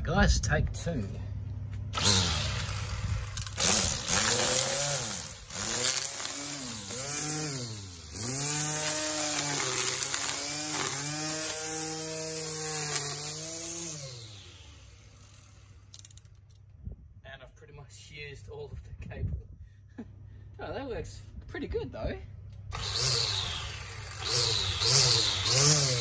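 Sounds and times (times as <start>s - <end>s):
electric string trimmer running: 1.9s - 16.2s, 22.7s - 26.0s.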